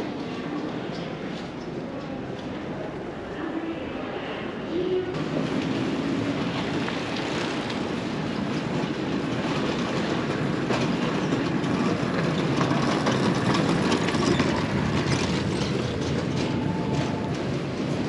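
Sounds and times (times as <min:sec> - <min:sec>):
cart wheels rattling on pavement: 0:05.2 - 0:18.0.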